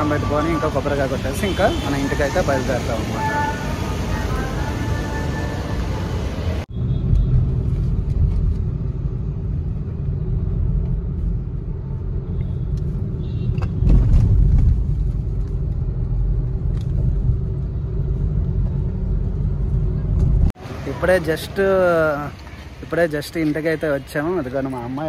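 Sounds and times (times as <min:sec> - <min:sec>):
car driving rumble: 0:05.6 - 0:21.4.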